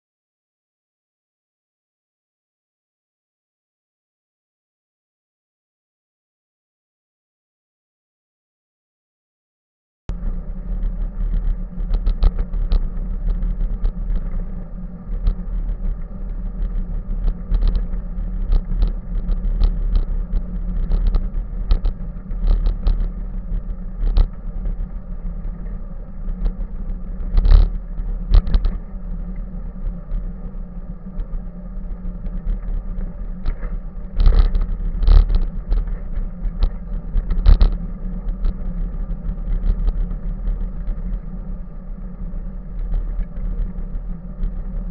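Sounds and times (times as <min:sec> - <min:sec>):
road rumble: 0:10.1 - 0:44.9
wind on microphone: 0:10.1 - 0:44.9.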